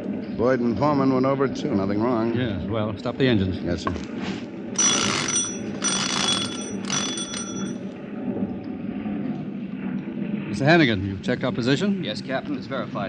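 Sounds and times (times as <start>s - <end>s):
steady low hum: 0.0s - 13.0s
engine-room telegraph bell ringing: 4.8s - 8.0s.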